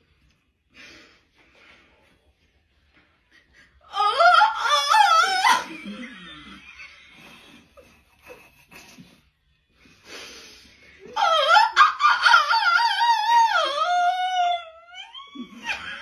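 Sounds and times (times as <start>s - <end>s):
high-pitched laughter: 3.4s - 9.4s, 15.0s - 16.0s.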